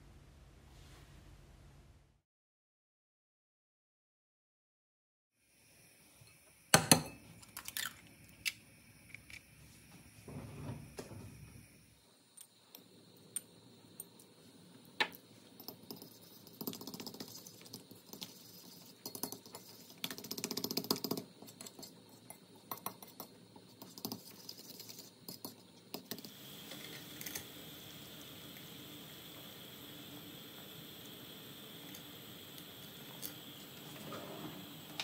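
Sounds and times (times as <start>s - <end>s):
water boiling in a pot: 5.4s - 35.0s.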